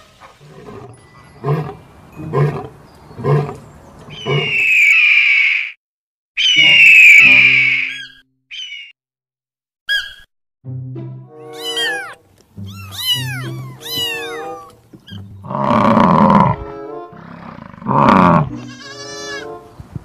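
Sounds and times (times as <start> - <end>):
animal calls rising and falling: 4.1 - 5.8, 6.4 - 9.0, 11.4 - 16.6
background music: 10.6 - 19.8.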